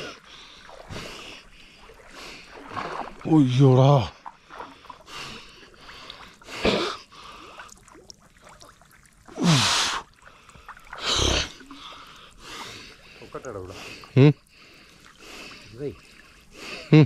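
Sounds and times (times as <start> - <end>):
person gasping: 9.4 - 10.0, 11.0 - 12.8.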